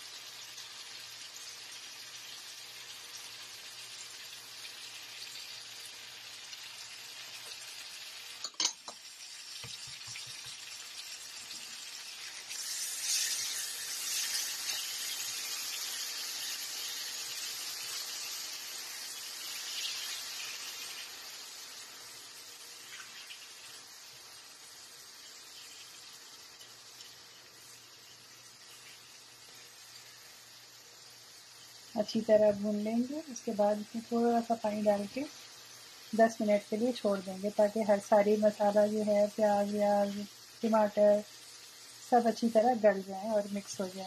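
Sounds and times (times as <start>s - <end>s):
masala sizzling in oil: 0.0s - 44.0s
spatula stirring in pan: 8.4s - 31.9s.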